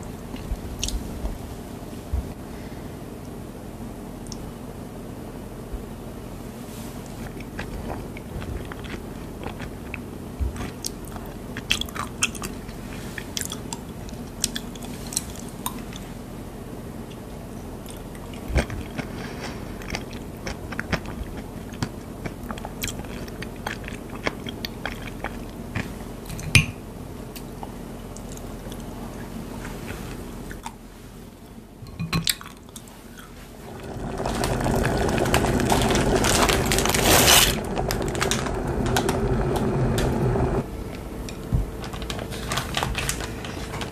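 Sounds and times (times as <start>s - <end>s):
chewing crunchy food: 7.2s - 16.1s, 17.1s - 26.4s
water boiling in a pot: 33.5s - 40.7s.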